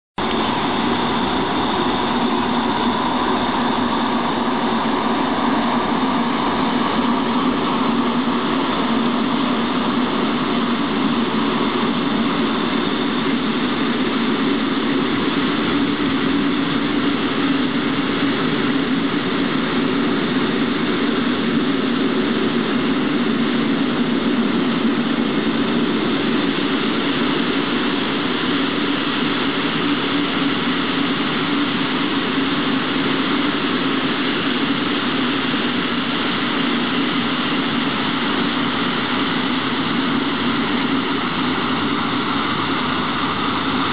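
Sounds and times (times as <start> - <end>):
diesel locomotive engine running: 0.2 - 43.9.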